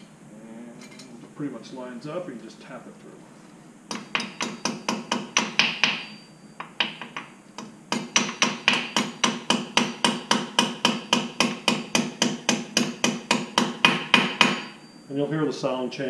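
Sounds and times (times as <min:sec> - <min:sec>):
hammer tapping metal pin: 0:03.9 - 0:14.8.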